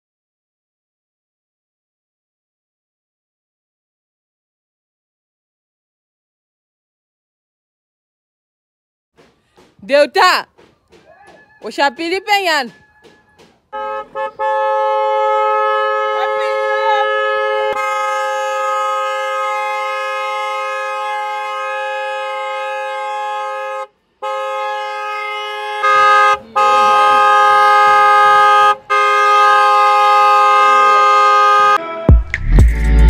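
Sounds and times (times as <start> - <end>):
vehicle horns blaring together: 11.0 - 32.0.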